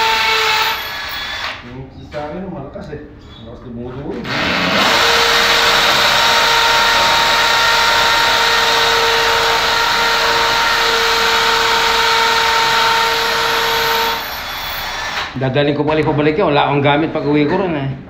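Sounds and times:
cordless drill boring into masonry: 0.0 - 1.6, 4.2 - 15.4.

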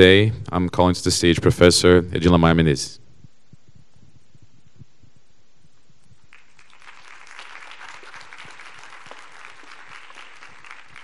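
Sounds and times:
audience applauding: 6.3 - 11.0.

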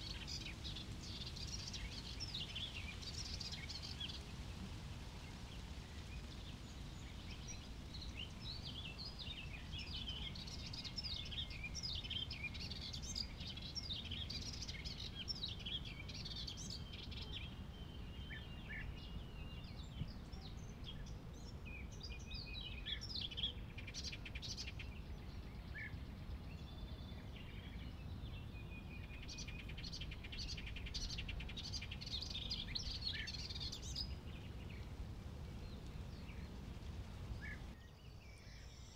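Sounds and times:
songbirds singing: 0.0 - 38.9.

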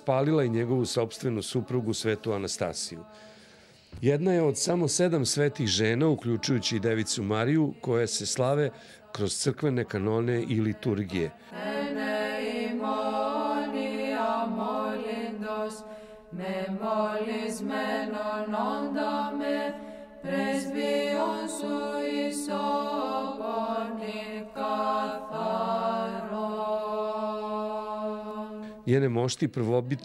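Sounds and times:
person chanting ornamented melody: 29.5 - 30.0.

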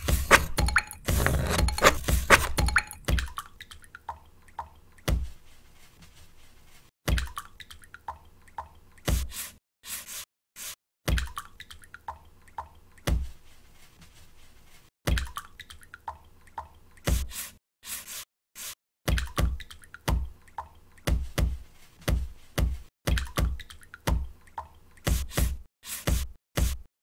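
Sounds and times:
brush tapping on jar: 0.0 - 3.2
water drips and plops: 2.4 - 5.3, 7.0 - 9.3, 11.0 - 13.4, 15.0 - 17.4, 19.0 - 21.6, 22.7 - 25.4.

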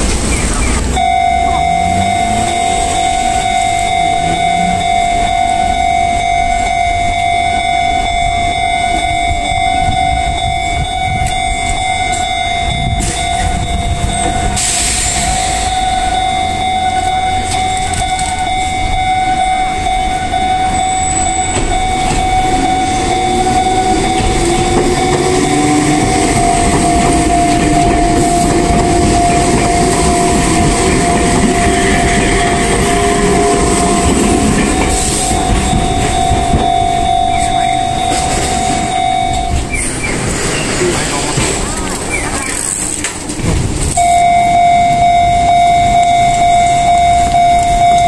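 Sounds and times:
level crossing alarm tone: 0.0 - 40.8, 43.9 - 48.0
train rumble and motor whine: 0.0 - 48.0.

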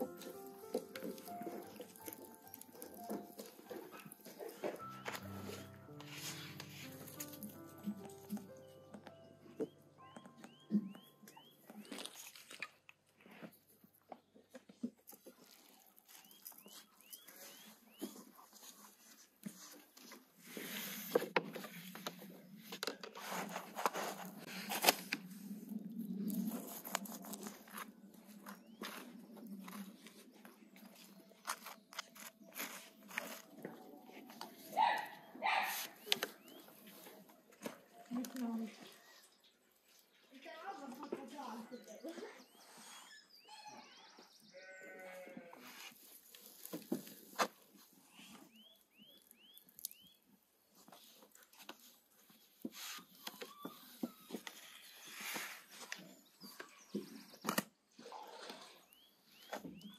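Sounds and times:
flatbread rustling on a griddle: 15.1 - 34.7, 45.6 - 48.6
livestock bleat: 44.5 - 45.7.

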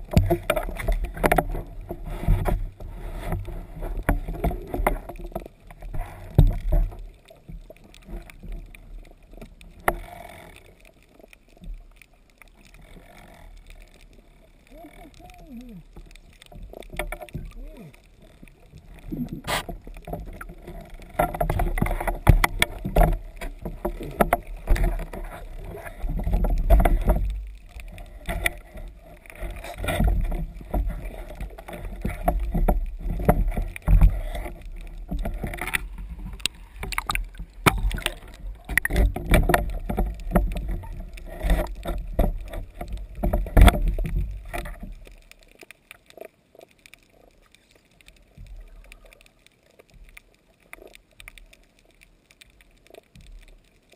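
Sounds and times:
water sloshing and rushing: 0.0 - 53.9
sharp clicks and knocks: 19.2 - 45.7.

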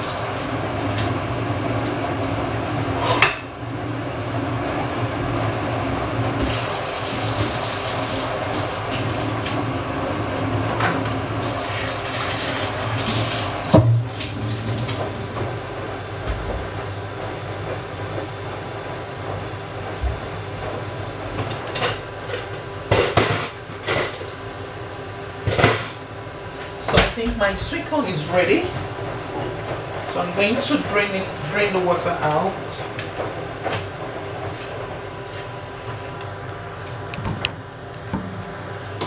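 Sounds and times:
dishes clattering: 3.0 - 3.5
tap running into a sink: 11.8 - 15.5.

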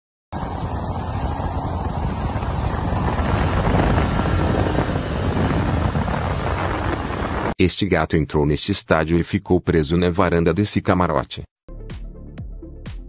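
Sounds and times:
rush of water spray: 0.4 - 7.6
snowmobile engine running: 0.4 - 7.6
wind buffeting microphone: 0.4 - 7.6.

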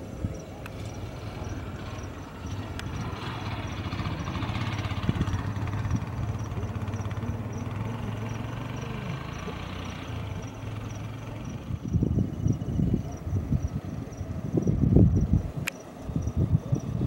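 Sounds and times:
engine humming: 0.0 - 17.0.

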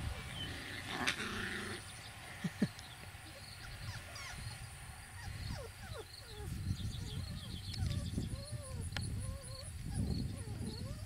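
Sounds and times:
puppies whimpering: 3.2 - 11.0.

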